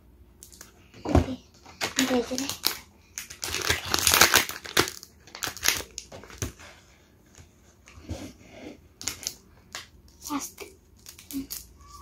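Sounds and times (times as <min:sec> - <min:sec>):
plastic bag crinkling: 0:01.8 - 0:06.5.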